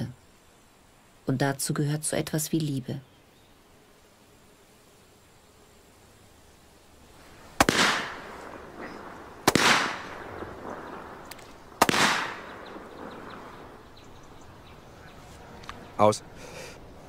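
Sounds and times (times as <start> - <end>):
firecracker bangs: 7.6 - 13.7.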